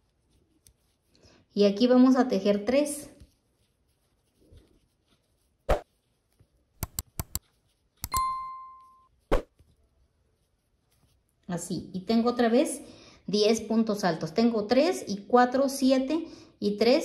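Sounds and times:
mouse clicks: 0:06.8 - 0:07.4, 0:08.0 - 0:08.3
notification bell ding: 0:08.1 - 0:09.1.

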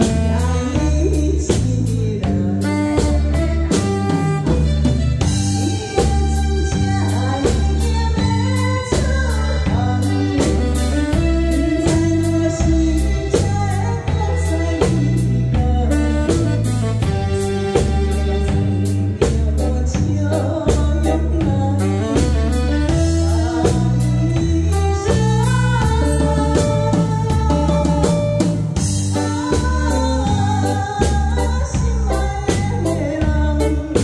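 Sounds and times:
woman singing into a microphone: 0:00.0 - 0:04.6, 0:05.2 - 0:34.0
drums: 0:00.0 - 0:34.0
steady bass beat: 0:00.0 - 0:34.0.

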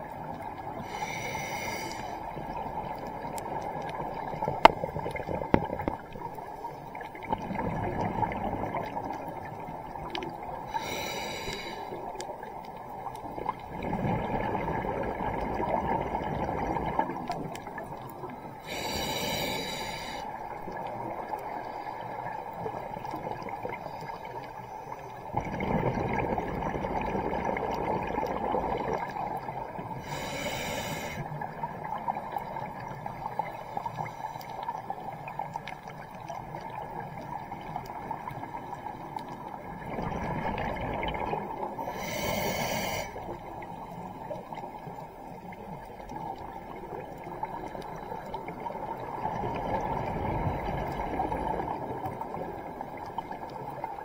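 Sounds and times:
hiss of inhaled air: 0:00.8 - 0:02.2, 0:10.7 - 0:12.0, 0:18.6 - 0:20.3, 0:30.0 - 0:31.3, 0:41.9 - 0:43.3
diver breathing through regulator: 0:00.8 - 0:02.3, 0:10.7 - 0:12.0, 0:18.6 - 0:20.3, 0:30.0 - 0:31.4, 0:41.8 - 0:43.4.

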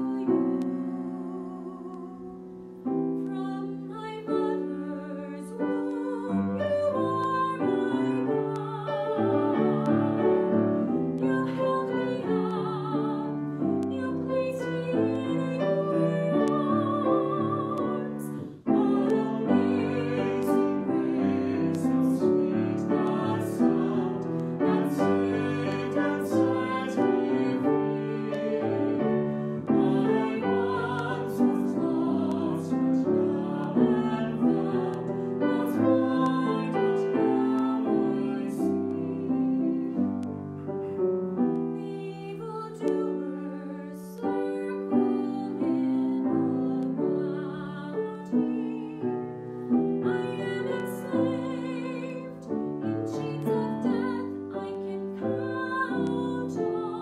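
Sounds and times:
grand piano: 0:00.0 - 0:57.0
woman singing with vibrato: 0:03.2 - 0:09.8, 0:11.2 - 0:20.2.

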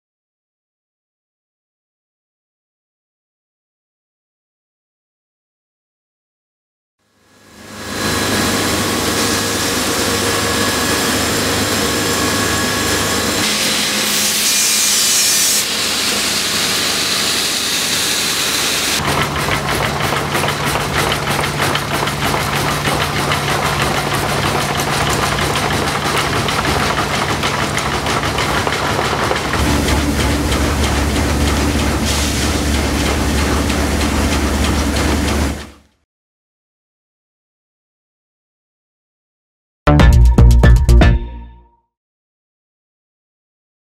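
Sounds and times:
grinding stones rasping on rails: 0:07.9 - 0:35.7
low machinery hum: 0:18.9 - 0:35.9.

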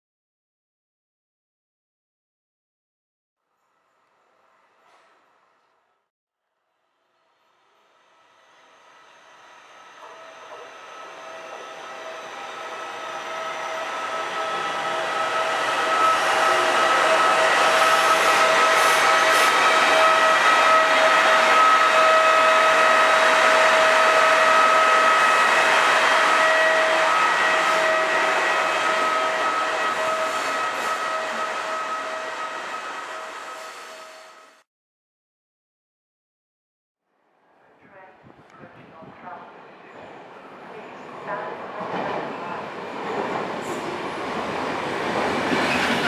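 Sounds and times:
high-pitched train whine: 0:06.8 - 0:34.6, 0:37.9 - 0:46.0.

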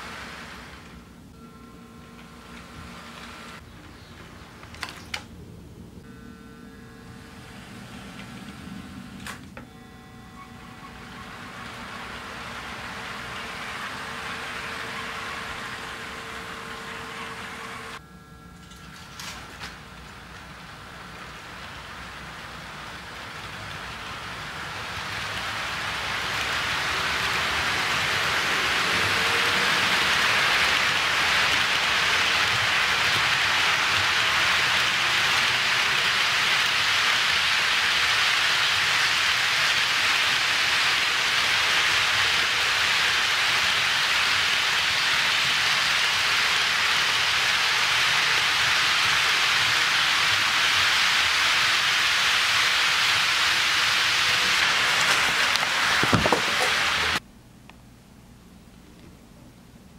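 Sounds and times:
locomotive hum with faint whine: 0:00.0 - 0:59.9
model train wheels hissing: 0:10.5 - 0:18.0, 0:20.5 - 0:57.2.

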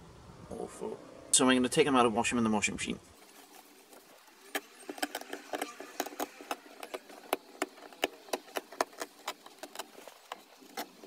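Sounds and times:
lining crackling as pulled off: 0:03.2 - 0:11.0.

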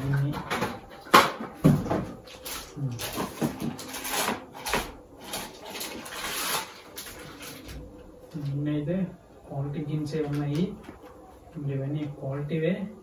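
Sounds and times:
plastic bag crinkling: 0:02.2 - 0:08.0.

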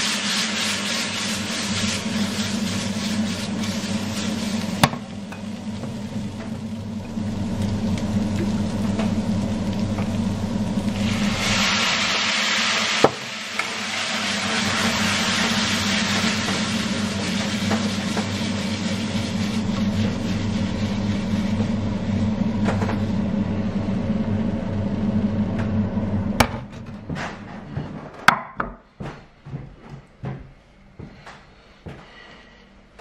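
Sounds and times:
meat sizzling in a frying pan: 0:00.0 - 0:20.8
steady low hum: 0:00.2 - 0:12.3, 0:13.6 - 0:33.0.

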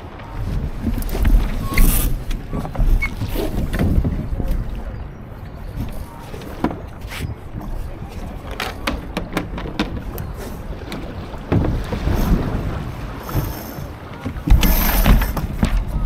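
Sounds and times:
sharp clicks and knocks from boat: 0:00.0 - 0:16.0
wind buffeting microphone: 0:00.0 - 0:16.0.

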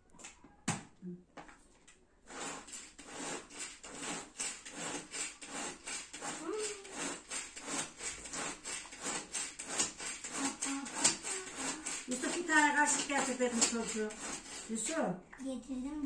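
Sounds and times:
knife cutting tomato: 0:02.5 - 0:14.7.

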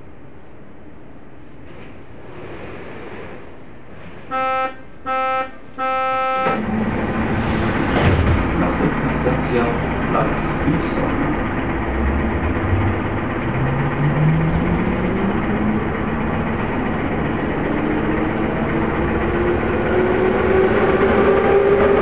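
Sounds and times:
train running rumble: 0:00.0 - 0:22.0
traction motor whine rising: 0:06.4 - 0:22.0.

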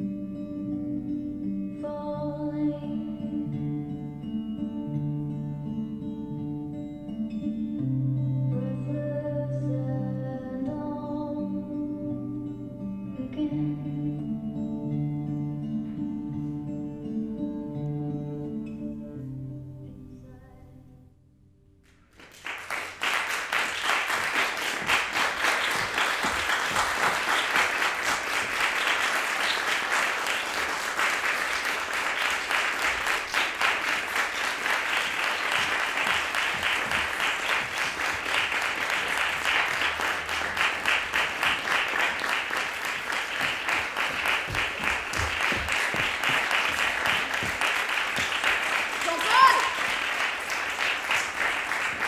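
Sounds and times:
audience applauding: 0:22.1 - 0:52.0.

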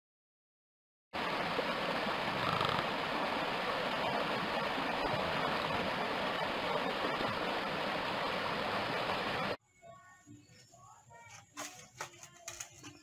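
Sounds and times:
stream splashing over rocks: 0:01.2 - 0:09.6.

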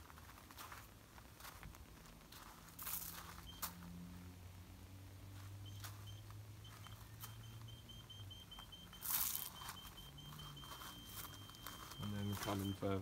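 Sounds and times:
footsteps on gravel: 0:00.0 - 0:04.0, 0:09.0 - 0:13.0
parking sensor buzzer beeping: 0:03.4 - 0:03.7, 0:05.6 - 0:13.0.

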